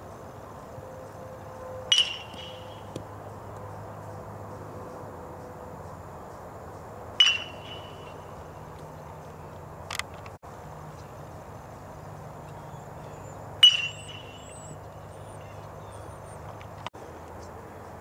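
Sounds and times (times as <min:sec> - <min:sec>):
steady background hum: 0:00.0 - 0:18.0
metal bat hitting ball: 0:01.9 - 0:03.1, 0:07.2 - 0:08.2, 0:13.6 - 0:14.3.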